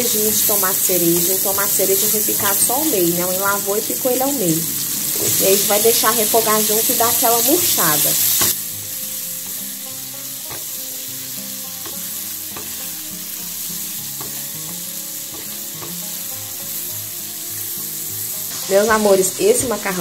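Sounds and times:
vegetables sizzling in oil: 0.0s - 20.0s
spoon scraping and tapping pan: 7.0s - 8.6s, 10.4s - 10.9s, 11.7s - 16.9s.

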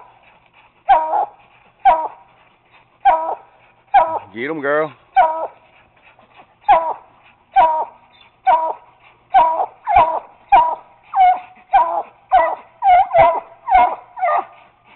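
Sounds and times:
dog barking: 0.9s - 2.2s, 3.0s - 4.3s, 5.2s - 5.6s, 6.7s - 7.0s, 7.6s - 14.6s.

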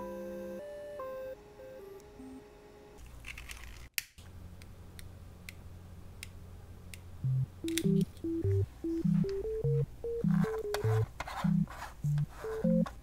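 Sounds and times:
low steady hum: 4.2s - 13.0s
music with plucked bass: 7.3s - 12.8s
sharp clicks: 7.7s - 8.2s.

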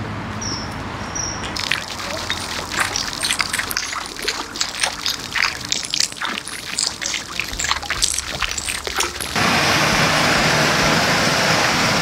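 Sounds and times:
fountain splashing into stone basin: 1.4s - 10.0s.

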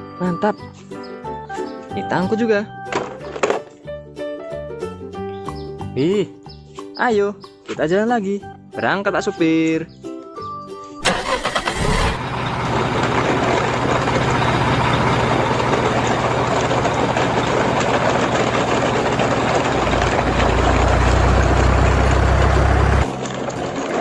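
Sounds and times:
truck engine running: 11.0s - 24.0s
deep drone: 11.7s - 24.0s.

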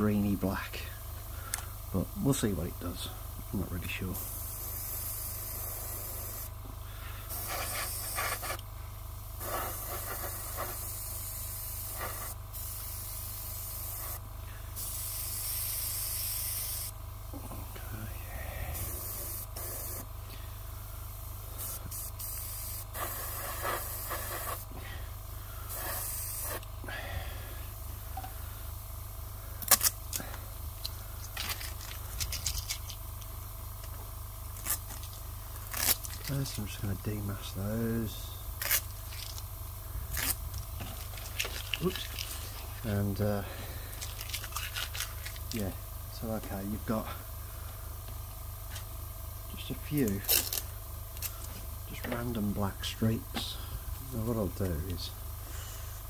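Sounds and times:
low steady hum: 0.0s - 56.0s
airbrush spraying hiss: 4.1s - 6.6s, 7.2s - 8.7s, 9.3s - 17.0s, 18.0s - 20.2s, 20.8s - 26.8s
tape peeling: 29.6s - 30.0s, 30.8s - 33.3s, 34.6s - 36.4s, 38.6s - 39.5s, 40.1s - 42.6s, 44.0s - 45.5s, 50.2s - 51.5s
paper tape crackling: 31.2s - 33.3s, 34.6s - 36.6s, 38.6s - 39.5s, 40.1s - 42.6s, 44.0s - 45.6s, 50.0s - 51.5s.

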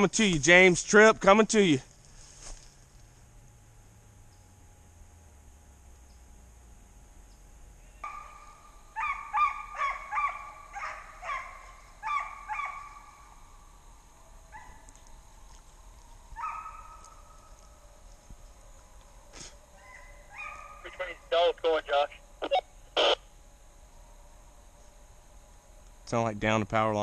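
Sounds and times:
hounds baying: 8.0s - 13.4s, 14.5s - 15.0s, 16.4s - 18.2s, 19.8s - 21.0s.

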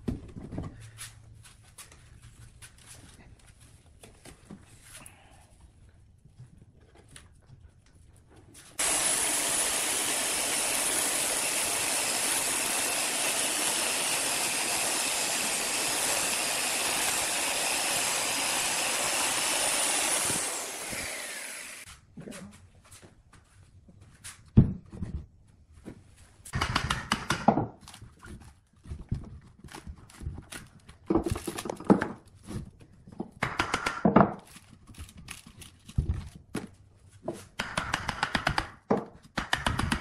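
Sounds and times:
electric chainsaw cutting log: 8.8s - 21.9s.

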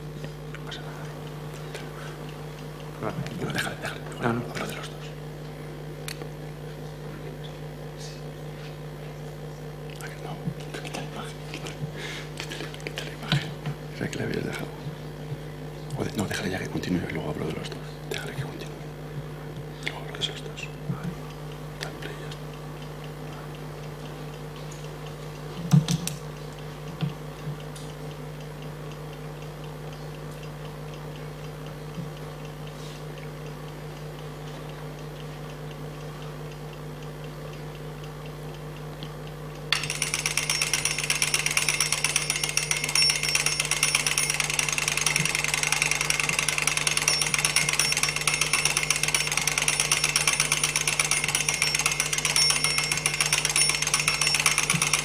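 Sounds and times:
steady hum: 0.0s - 55.0s
alarm clock bells ringing: 39.7s - 55.0s.

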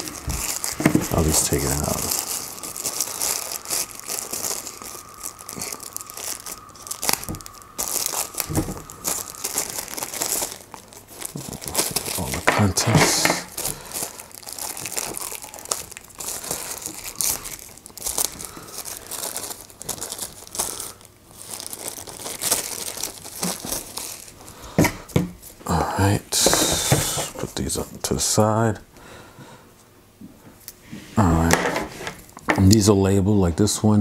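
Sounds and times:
plastic packaging crinkling: 0.0s - 27.9s.

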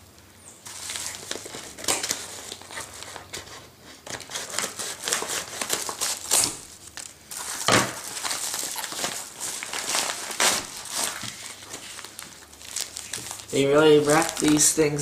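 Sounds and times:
paper envelope crinkling: 0.6s - 15.0s
scissors cutting paper: 0.9s - 6.6s.

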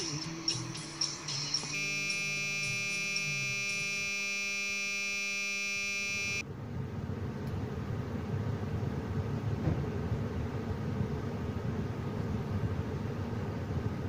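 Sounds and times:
electronic buzz with high whine: 0.0s - 6.5s
low rumbling background noise: 6.4s - 14.0s.

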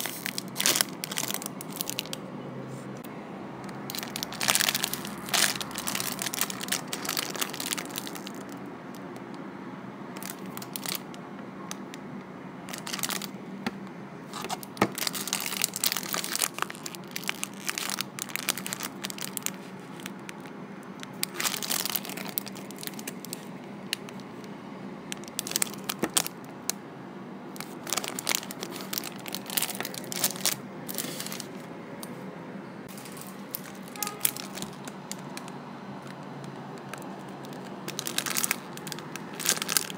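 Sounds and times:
plastic bag crinkling: 0.0s - 2.2s, 3.8s - 9.0s, 10.2s - 11.2s, 12.7s - 13.3s, 14.3s - 24.3s, 25.1s - 26.4s, 27.6s - 31.6s, 32.9s - 39.9s.

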